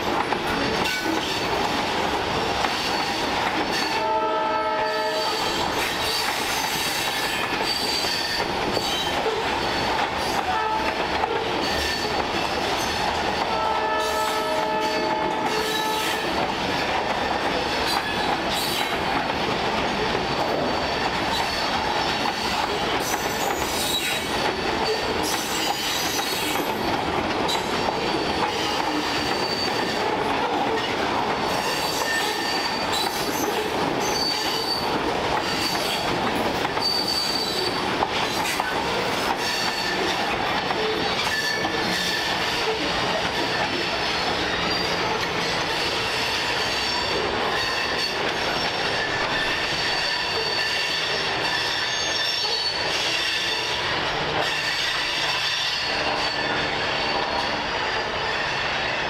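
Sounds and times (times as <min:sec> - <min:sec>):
wheels clacking over rail joints: 0:00.0 - 0:58.3
freight train wheels rumbling: 0:00.0 - 0:59.0
high wheel squeal: 0:04.8 - 0:10.0, 0:23.0 - 0:26.6, 0:28.0 - 0:30.1, 0:30.8 - 0:36.1, 0:36.8 - 0:37.8, 0:39.4 - 0:40.1, 0:40.8 - 0:42.7, 0:43.4 - 0:59.0.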